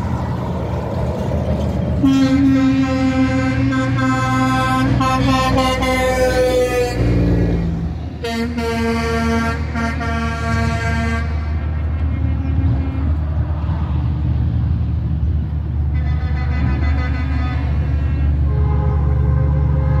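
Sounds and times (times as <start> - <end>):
diesel engine and road rumble: 0.0 - 20.0
truck air horn blasts: 2.0 - 7.6, 8.2 - 13.1, 15.9 - 20.0.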